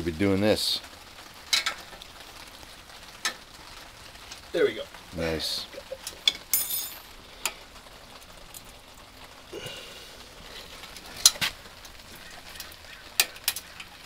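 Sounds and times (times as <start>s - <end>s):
rain falling: 0.0s - 14.0s.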